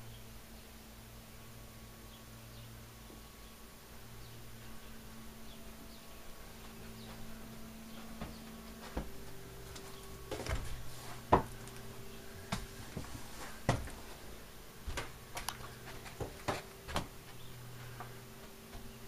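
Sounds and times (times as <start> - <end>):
faint steady hum: 0.0 - 19.0
footsteps on trailer floor: 6.3 - 19.0.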